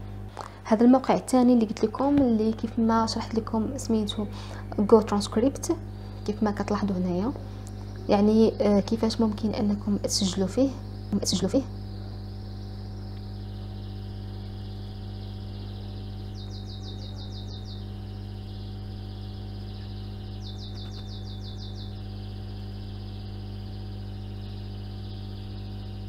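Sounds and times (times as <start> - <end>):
electrical hum and hiss: 0.0 - 26.0.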